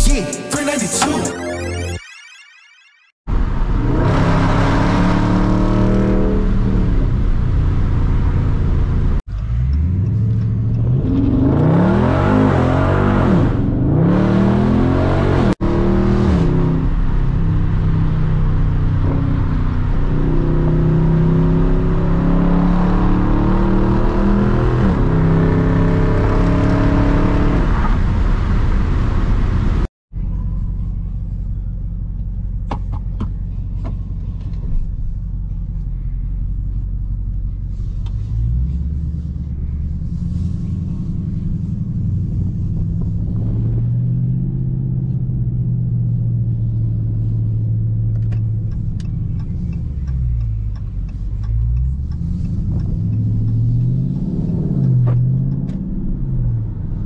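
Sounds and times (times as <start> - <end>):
car engine revving: 3.3 - 29.9, 37.5 - 57.0
car engine cruising: 3.3 - 57.0
car engine idling: 46.0 - 53.7.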